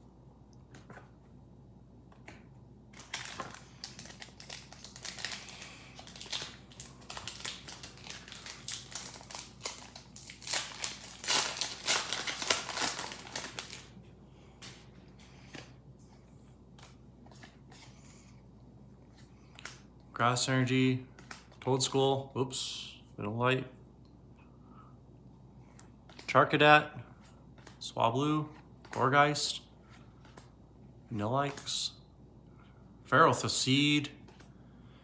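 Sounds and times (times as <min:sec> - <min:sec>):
faint clicks of cards handled: 0:00.5 - 0:01.2, 0:14.5 - 0:18.1, 0:19.1 - 0:20.1, 0:21.1 - 0:21.7, 0:25.6 - 0:26.4, 0:27.2 - 0:27.8, 0:29.9 - 0:30.6, 0:34.2 - 0:34.6
foil wrapper crinkling and tearing: 0:02.9 - 0:14.0.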